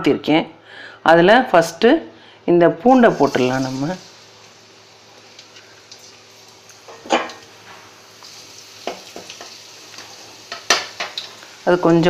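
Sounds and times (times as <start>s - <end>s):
garlic sizzling in oil: 3.0s - 12.0s.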